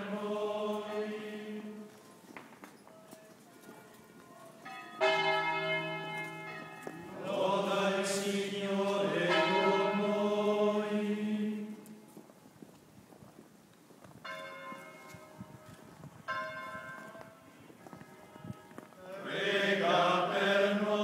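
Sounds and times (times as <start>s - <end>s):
men chanting in unison: 0.0s - 1.9s, 7.1s - 11.7s, 19.0s - 21.0s
church bells ringing: 3.3s - 11.8s, 14.2s - 21.0s.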